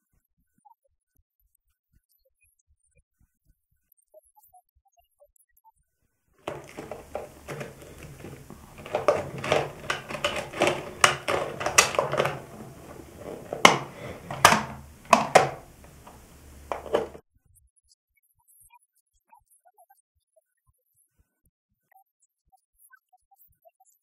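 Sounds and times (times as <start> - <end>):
hard plastic clicking and knocking: 6.4 - 17.2.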